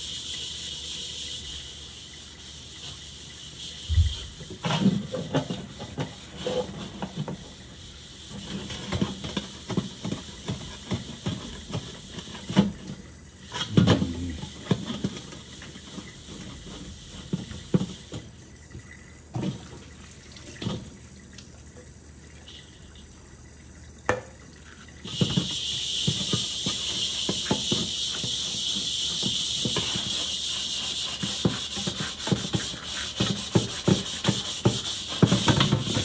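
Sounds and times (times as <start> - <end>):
sponge scrubbing steel wok: 0.0 - 12.6, 25.6 - 36.0
running tap hiss: 0.0 - 36.0.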